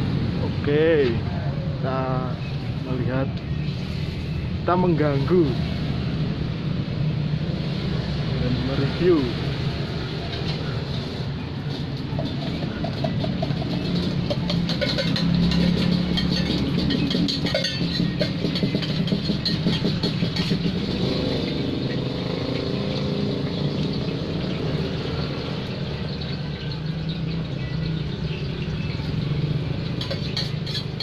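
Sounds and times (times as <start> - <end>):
metal clinks and scrapes: 10.2 - 23.7, 29.0 - 31.0
constant low rumble: 10.3 - 20.9.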